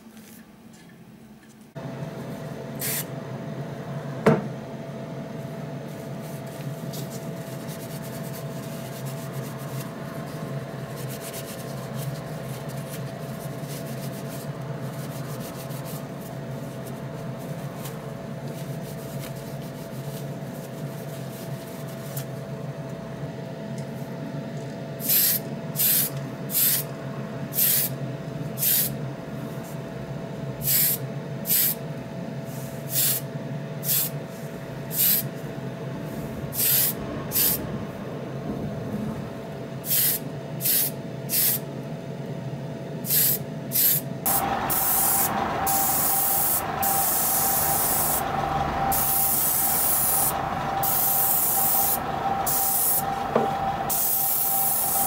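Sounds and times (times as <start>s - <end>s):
extraction fan humming: 0.0s - 55.0s
short hissing spray bursts: 2.8s - 3.1s, 25.0s - 26.9s, 27.6s - 27.9s, 28.6s - 28.9s, 30.6s - 31.8s, 32.5s - 33.2s, 33.8s - 34.1s, 34.9s - 35.3s, 36.6s - 37.6s, 39.8s - 41.6s, 43.1s - 48.3s, 48.9s - 53.1s, 53.9s - 55.0s.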